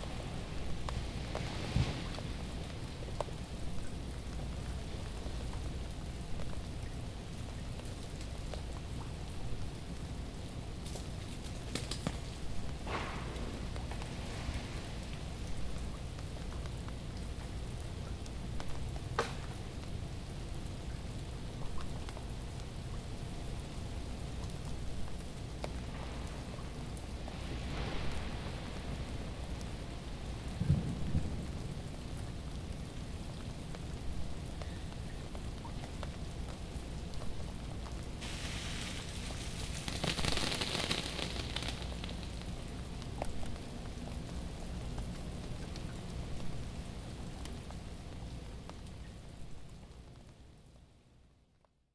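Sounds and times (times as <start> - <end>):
ice cracking on branches: 10.8 - 14.4, 38.2 - 42.8
steady low rumble: 12.3 - 50.1.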